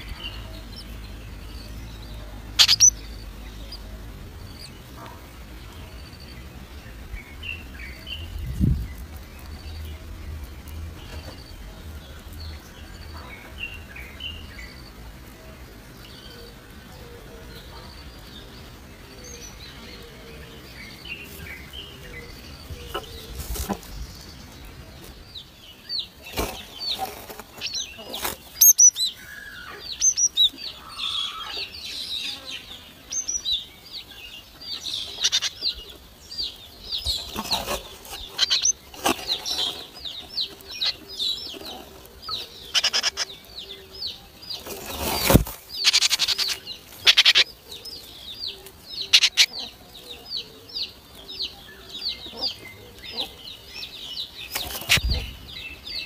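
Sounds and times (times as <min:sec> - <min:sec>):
nestlings cheeping: 0:00.0 - 0:06.4, 0:26.0 - 0:31.7, 0:34.4 - 0:43.5, 0:44.3 - 0:48.1.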